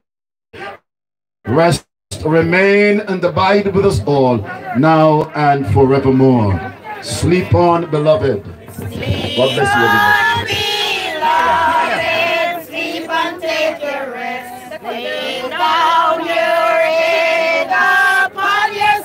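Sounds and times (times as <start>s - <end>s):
congregation singing a hymn: 8.7s - 19.0s.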